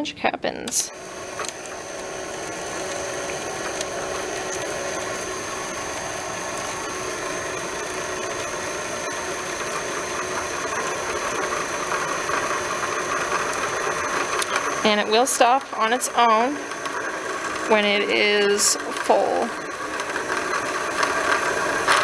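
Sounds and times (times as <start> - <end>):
sewing machine bobbin winder whirring: 0.7 - 22.0.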